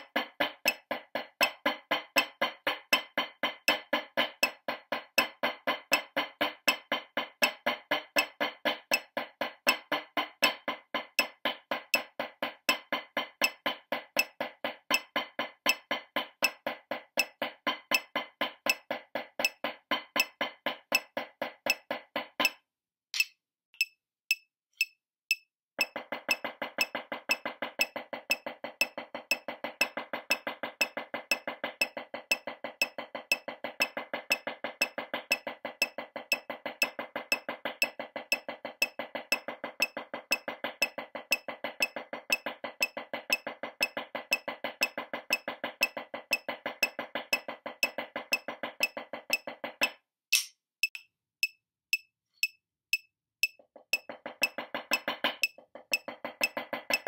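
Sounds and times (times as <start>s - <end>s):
metronome clicking: 0.0s - 22.6s, 23.2s - 57.0s
drumsticks on practice pad: 23.2s - 57.0s.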